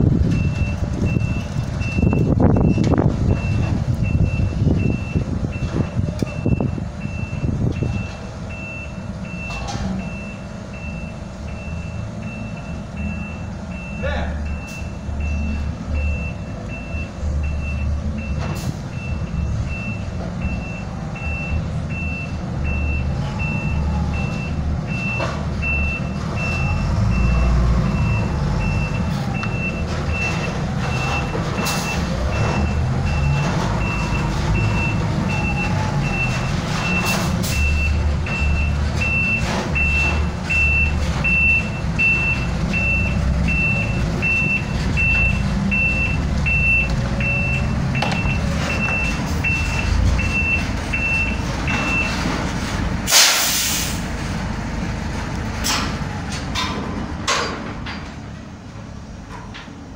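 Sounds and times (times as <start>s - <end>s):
truck engine running: 0.0s - 59.9s
reversing alarm beeps: 0.3s - 52.2s.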